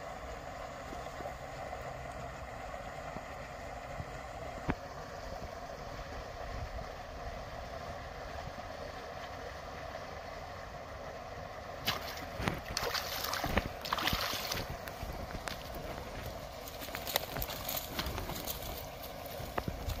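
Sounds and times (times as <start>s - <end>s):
fish thrashing and splashing: 11.8s - 19.0s.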